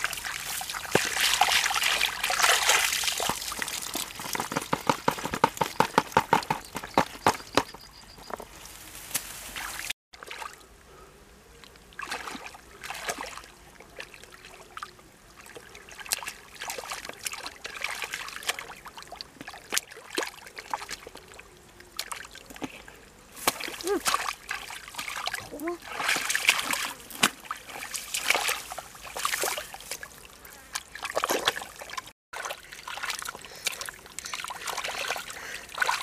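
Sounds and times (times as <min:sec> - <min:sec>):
hands splashing in shallow water: 0:00.0 - 0:06.5
water dripping into a bucket: 0:00.0 - 0:08.4.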